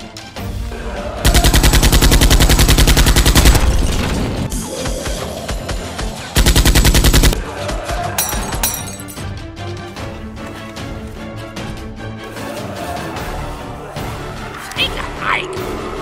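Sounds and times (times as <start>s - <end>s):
automatic gunfire: 1.3s - 4.2s, 6.4s - 7.4s.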